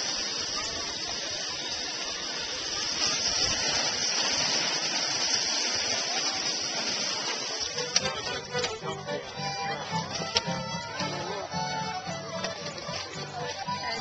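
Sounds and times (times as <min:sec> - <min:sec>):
garden hose spraying water: 0:00.0 - 0:11.2
steam hissing: 0:00.0 - 0:12.3.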